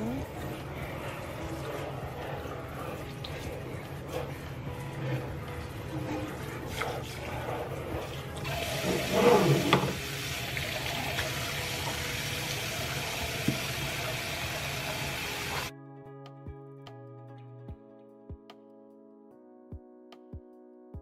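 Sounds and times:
tap water running into bath: 0.1 - 15.7.

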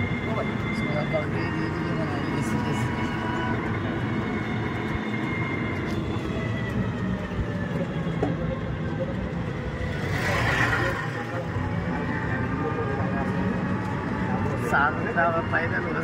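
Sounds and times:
vehicle rumble and road noise: 0.0 - 16.0.

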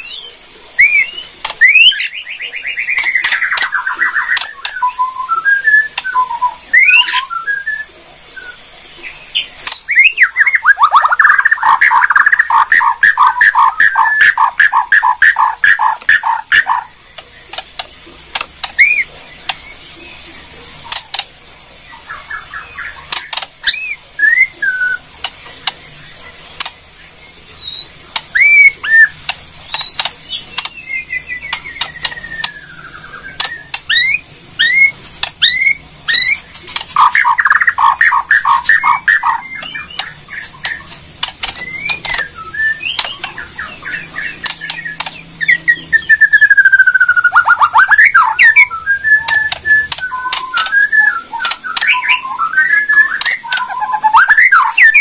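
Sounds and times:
bird singing whistled notes: 0.0 - 16.9, 22.0 - 25.0, 27.6 - 36.4, 37.0 - 41.0, 41.6 - 55.0
sharp bird clicks: 2.9 - 5.0, 9.6 - 19.6, 20.8 - 21.3, 23.0 - 24.0, 26.6 - 26.8, 28.1 - 32.7, 33.3 - 55.0.

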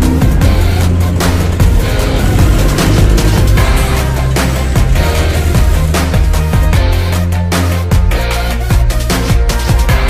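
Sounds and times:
music with heavy bass and drums: 0.0 - 10.0.

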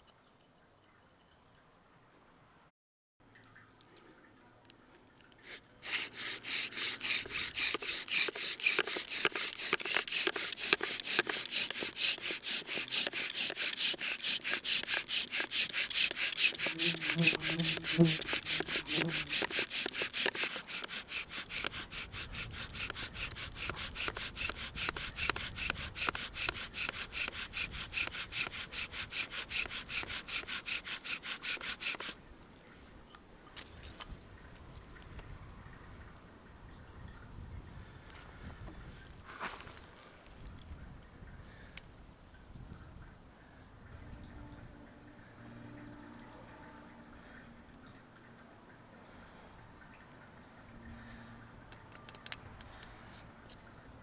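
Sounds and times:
bow drill rasping: 5.4 - 32.2.

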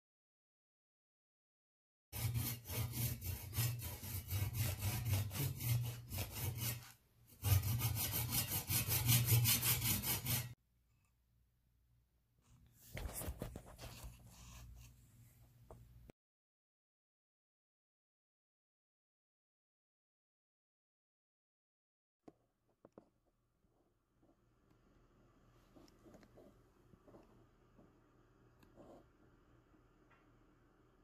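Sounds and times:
hand saw sawing wood: 2.2 - 10.6.

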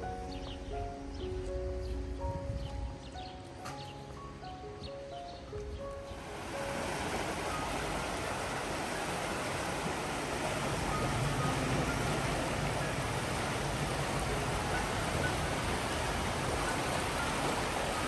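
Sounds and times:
rushing water: 5.4 - 18.0.

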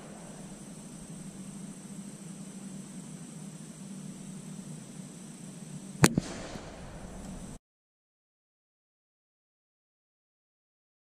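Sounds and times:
rifle shot crack: 0.0 - 1.4, 6.0 - 7.6
steady outdoor hiss: 0.0 - 7.6
weaker second crack: 6.0 - 7.6.

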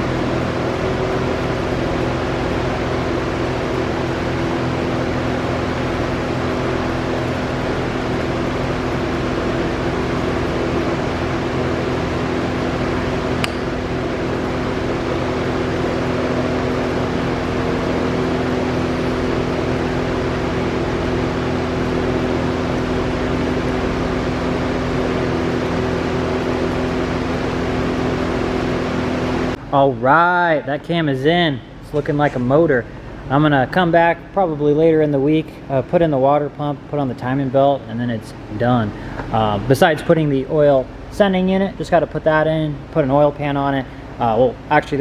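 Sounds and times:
fan whirring: 0.0 - 45.0
short click: 13.4 - 13.7.

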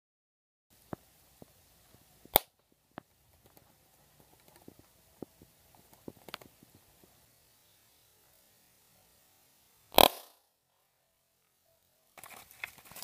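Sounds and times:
balloon bursting pop: 9.9 - 10.4.

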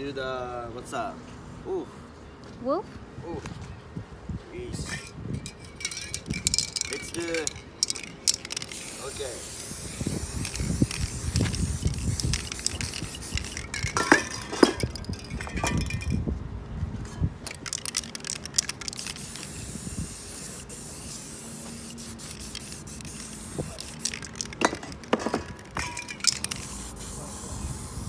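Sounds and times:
spray paint can hissing: 4.9 - 16.2, 17.5 - 28.0.

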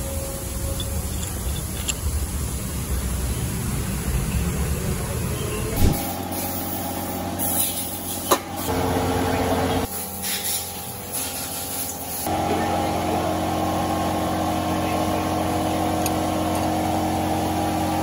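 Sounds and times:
machine hum: 8.1 - 10.2.

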